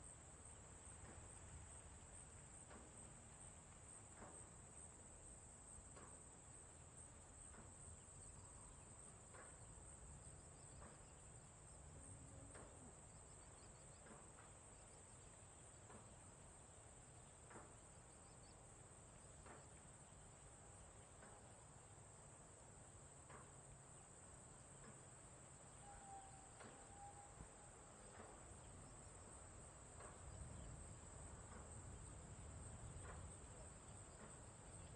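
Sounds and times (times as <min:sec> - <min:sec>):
low outdoor hum: 0:00.0 - 0:34.9
high-pitched insect chorus: 0:23.4 - 0:34.9.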